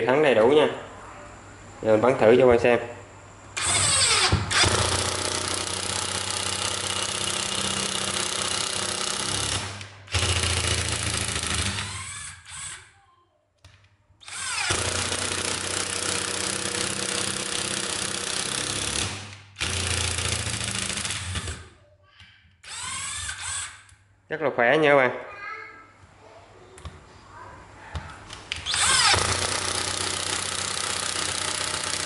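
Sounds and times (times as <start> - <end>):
cordless drill whining: 3.6 - 12.9, 14.2 - 21.6, 22.6 - 23.9, 28.6 - 32.0.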